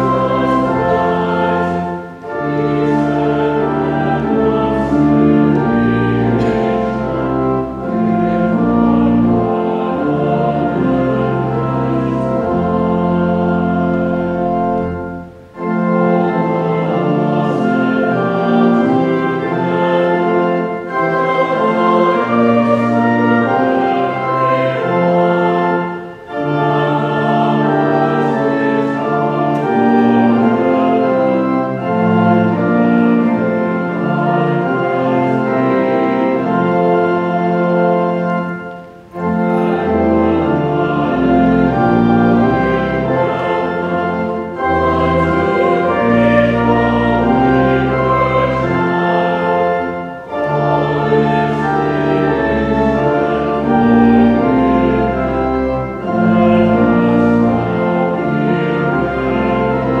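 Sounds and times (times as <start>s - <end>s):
group singing a hymn: 0.0s - 60.0s
organ accompaniment: 0.0s - 60.0s.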